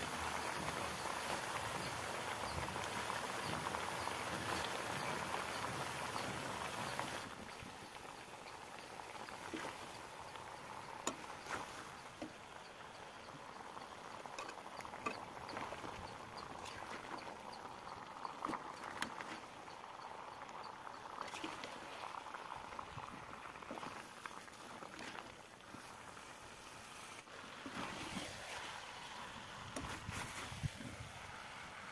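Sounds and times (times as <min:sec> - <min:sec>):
spoon mixing food in pan: 0:07.5 - 0:20.2.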